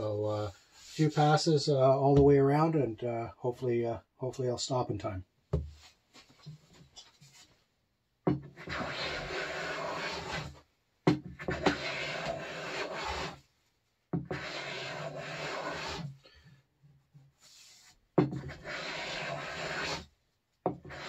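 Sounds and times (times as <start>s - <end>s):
hand plane scraping rasp: 8.6s - 10.6s, 11.4s - 13.4s, 14.3s - 16.1s, 17.5s - 20.1s, 20.7s - 21.0s.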